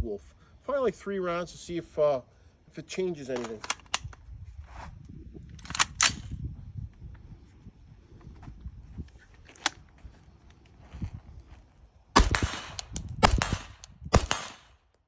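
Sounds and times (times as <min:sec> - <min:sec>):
suppressed rifle shots: 0:12.2 - 0:14.7.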